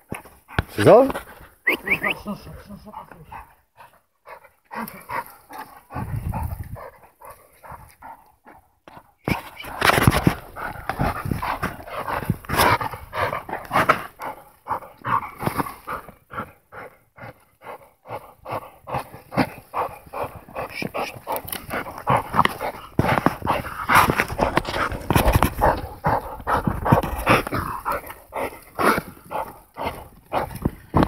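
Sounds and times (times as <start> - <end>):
dog noises: 0.0 - 31.0
wood crunching and snapping: 9.3 - 14.3, 20.2 - 31.0.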